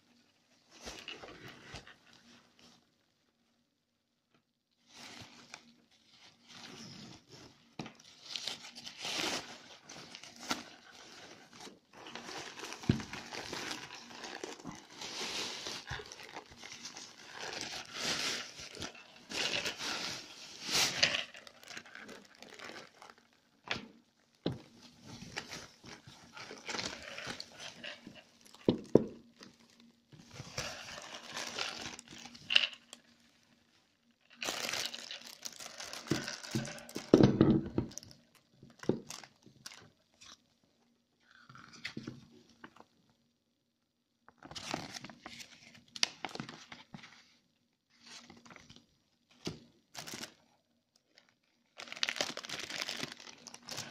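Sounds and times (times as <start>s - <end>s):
bag and wrapping rustling: 4.9s - 23.4s, 24.6s - 33.0s, 34.3s - 38.1s, 51.1s - 53.9s.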